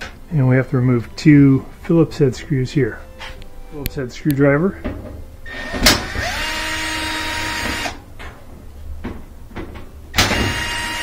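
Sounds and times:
cordless drill motor running: 5.5s - 8.0s, 10.2s - 11.0s.

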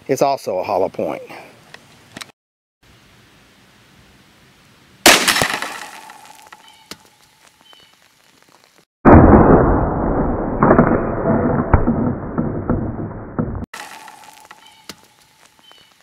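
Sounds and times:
rifle shot: 5.1s - 6.1s, 9.1s - 13.0s
cans bursting and soda spattering: 5.1s - 6.6s, 13.8s - 14.7s.

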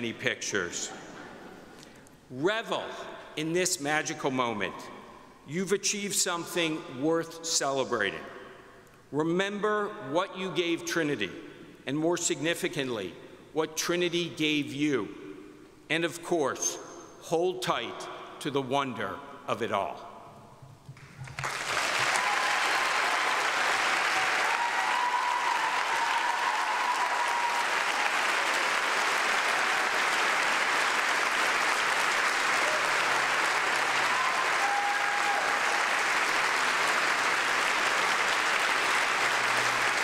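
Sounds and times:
large audience applauding: 21.0s - 40.0s.

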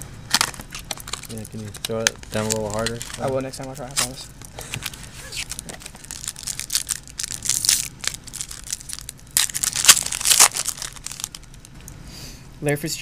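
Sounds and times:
foil pack crinkling and tearing: 0.3s - 11.7s.

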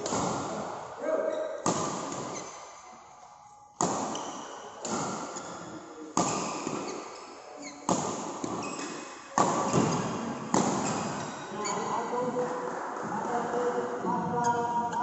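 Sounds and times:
badminton racket hitting shuttlecock: 1.6s - 2.6s, 3.8s - 5.6s, 6.2s - 11.4s.

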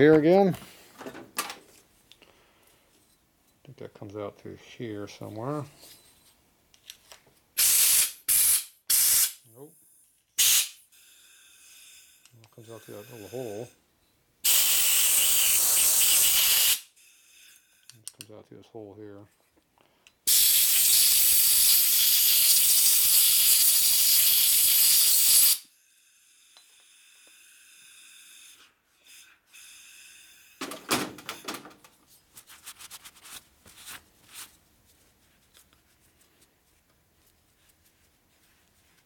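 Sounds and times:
compressed air blow gun blasting: 7.6s - 9.4s, 10.4s - 10.8s, 14.4s - 16.9s, 20.3s - 25.6s.

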